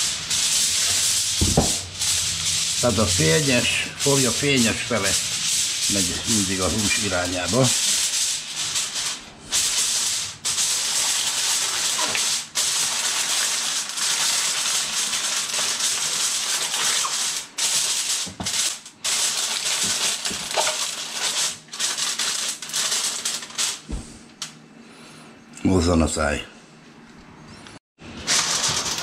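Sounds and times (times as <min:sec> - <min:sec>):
aluminium foil crinkling: 0:06.2 - 0:23.9, 0:28.2 - 0:29.0.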